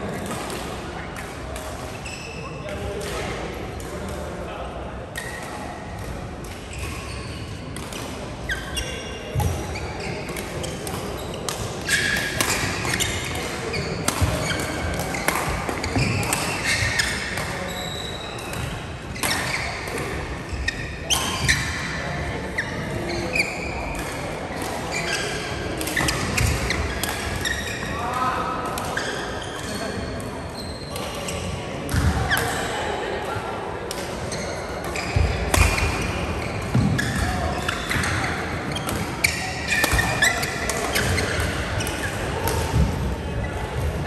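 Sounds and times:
shoes squeaking on court: 8.4 - 28.1, 28.9 - 32.7, 34.3 - 44.0
rackets hitting shuttlecocks: 10.3 - 17.6, 34.8 - 43.2.

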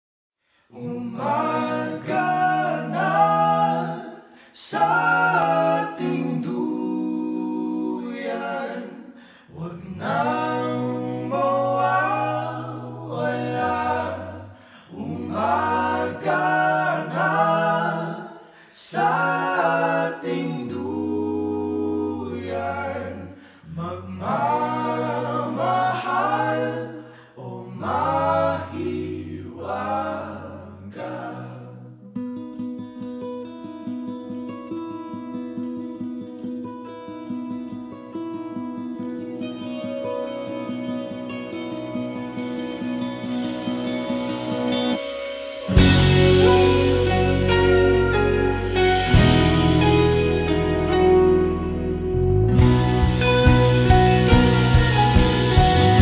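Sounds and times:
group singing in harmony: 0.7 - 32.0, 41.5 - 51.1, 52.5 - 56.0.

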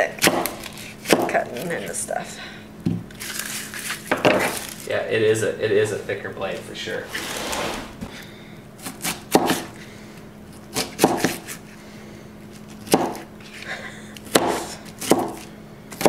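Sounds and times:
knife chopping on cutting board: 8.8 - 9.7, 10.8 - 11.5, 12.9 - 13.2, 14.3 - 15.4.

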